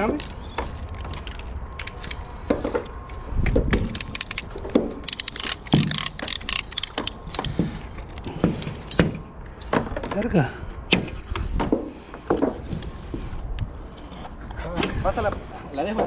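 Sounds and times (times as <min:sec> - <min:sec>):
metallic clicks and rattles: 0:03.1 - 0:09.7.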